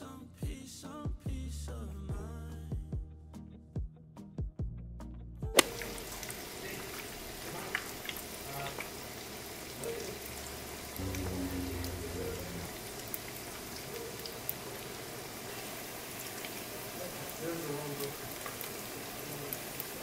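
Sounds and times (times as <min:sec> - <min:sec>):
oil crackling and popping: 0:05.6 - 0:11.0, 0:12.8 - 0:20.0
food sizzling in oil: 0:05.6 - 0:20.0.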